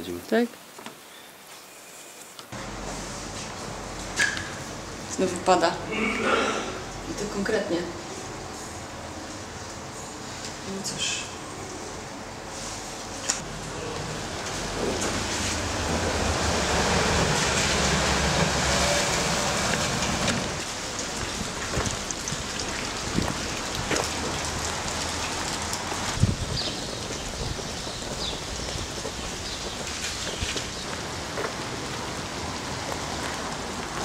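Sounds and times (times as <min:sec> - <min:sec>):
heavy rain falling: 0:06.7 - 0:34.0
water drips and taps: 0:21.0 - 0:26.1.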